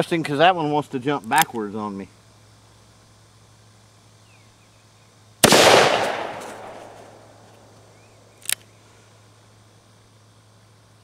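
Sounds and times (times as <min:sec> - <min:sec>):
revolver gunshot: 0:05.4 - 0:07.4.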